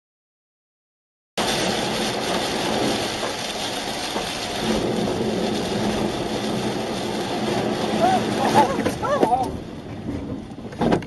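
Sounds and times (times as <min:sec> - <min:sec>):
tyres hissing through water: 0:01.4 - 0:09.6
heavy rain on a car: 0:01.4 - 0:11.0.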